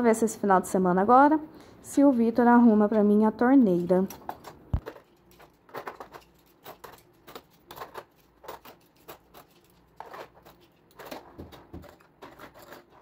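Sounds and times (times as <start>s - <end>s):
metal cutlery clattering into tray: 2.9s - 13.0s.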